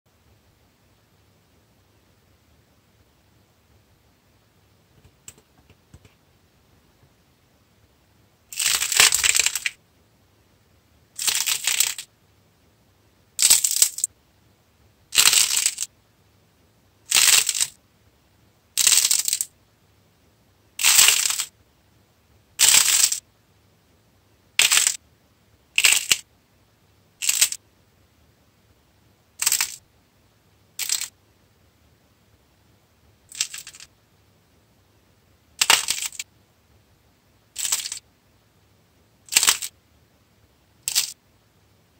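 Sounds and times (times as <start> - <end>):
hardened clay crackling: 8.5 - 9.8.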